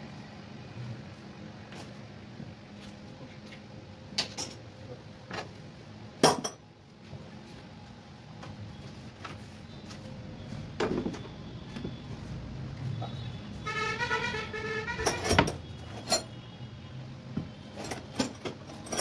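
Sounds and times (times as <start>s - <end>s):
metallic clinks and knocks: 15.0s - 16.4s, 17.7s - 19.0s.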